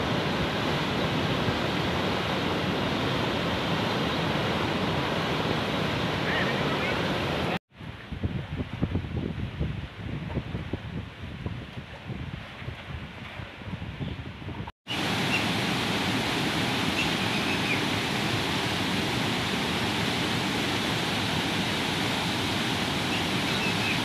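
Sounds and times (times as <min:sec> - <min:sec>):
wind noise on microphone: 0:07.7 - 0:24.0
water rushing down spillway: 0:14.9 - 0:24.0.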